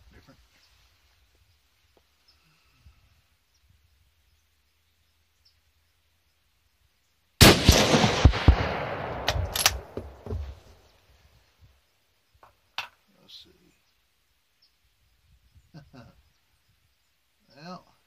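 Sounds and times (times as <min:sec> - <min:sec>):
rifle shot with echo: 0:07.4 - 0:10.5
sharp clicks: 0:09.2 - 0:10.1.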